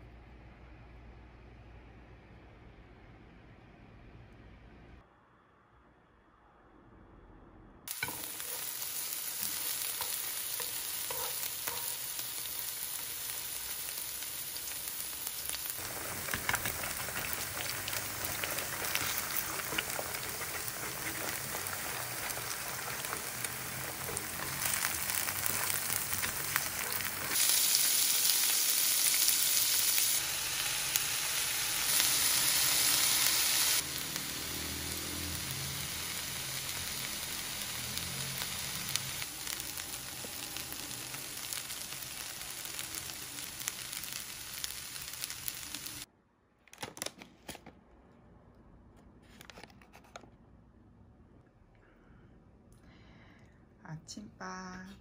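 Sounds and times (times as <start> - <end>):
stirring in pan: 7.9 - 27.5
food sizzling in frying pan: 7.9 - 46.1.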